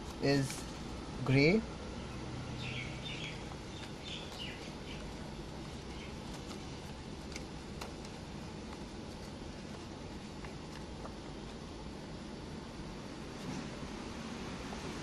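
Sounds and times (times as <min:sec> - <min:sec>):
steady background hiss: 0:00.0 - 0:15.0
soft paper clicks: 0:03.3 - 0:11.3.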